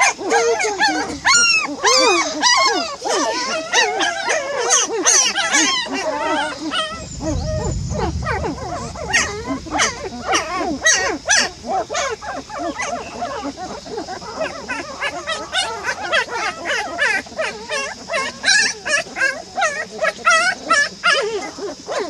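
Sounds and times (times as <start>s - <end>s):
puppies whining and yelping: 0.0s - 7.0s, 12.3s - 22.0s.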